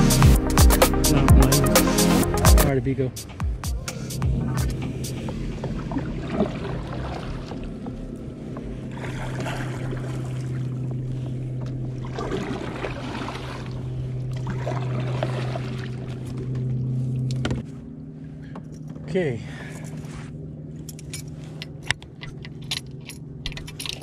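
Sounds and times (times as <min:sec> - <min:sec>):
water washing along hull: 0:01.1 - 0:24.0.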